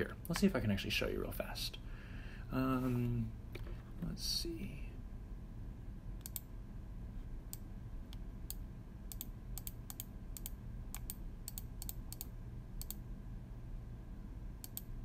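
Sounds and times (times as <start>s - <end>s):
computer mouse clicking: 6.2s - 6.5s, 7.5s - 13.0s, 14.6s - 14.9s.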